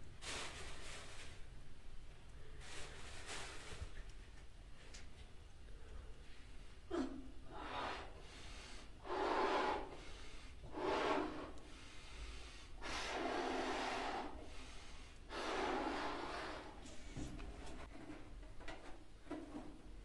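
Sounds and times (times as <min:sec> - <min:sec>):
breathing: 0:02.4 - 0:04.0, 0:07.5 - 0:17.4
man blowing up a balloon: 0:09.0 - 0:10.0, 0:12.8 - 0:14.4, 0:15.3 - 0:16.8.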